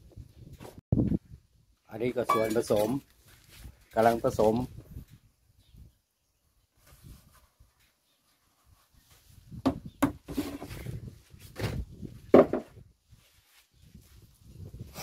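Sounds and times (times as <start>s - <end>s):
scraping and rustling: 10.2s - 11.9s
plastic buckets knocking: 12.3s - 12.8s.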